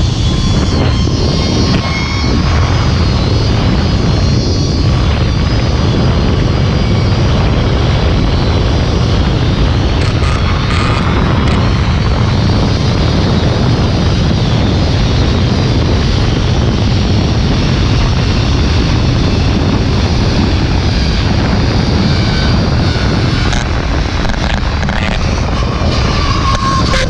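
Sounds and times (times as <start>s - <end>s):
wind buffeting microphone: 0.0s - 27.0s
pulleys rolling along steel cable: 9.4s - 12.2s, 22.4s - 27.0s.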